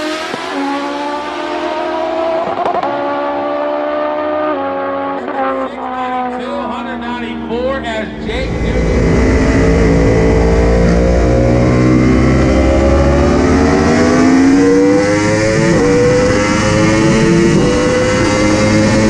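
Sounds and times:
motorcycle engine accelerating hard: 0.0 - 19.0
wind rush: 8.2 - 11.6.

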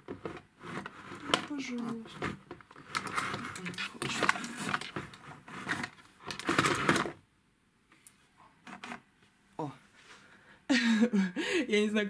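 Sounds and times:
plastic organizers clicking and rattling: 0.0 - 7.2.

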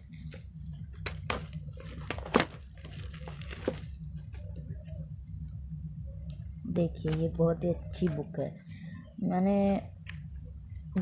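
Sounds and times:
plastic packaging crinkling: 0.1 - 4.6.

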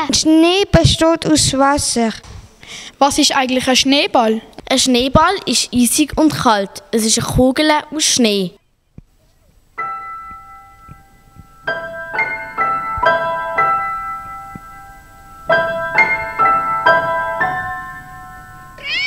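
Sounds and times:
piano music: 9.8 - 18.9.

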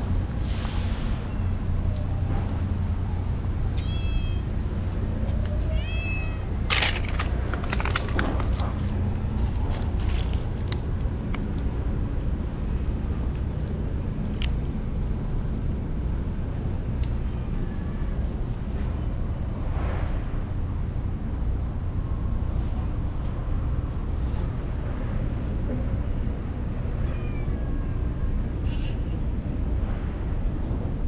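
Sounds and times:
steady low rumble: 0.0 - 31.0
cat meowing: 3.8 - 4.5, 5.4 - 6.6, 27.0 - 28.1
crackling rustles: 6.6 - 11.7.

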